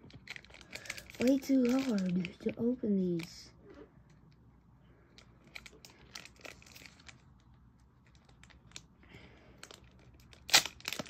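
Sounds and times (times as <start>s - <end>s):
foil wrapper crinkling: 0.0s - 3.3s, 5.5s - 7.5s, 9.6s - 11.0s
foil wrapper ripping: 9.6s - 11.0s.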